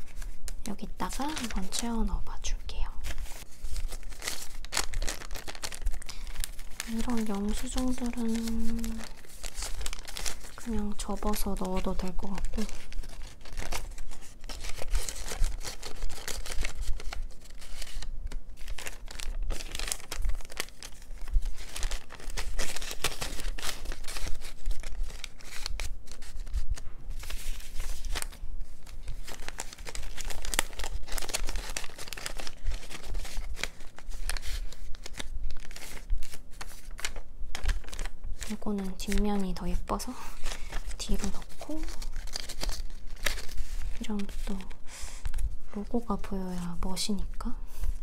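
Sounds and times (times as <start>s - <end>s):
paper rustling and crinkling: 0.0s - 48.0s.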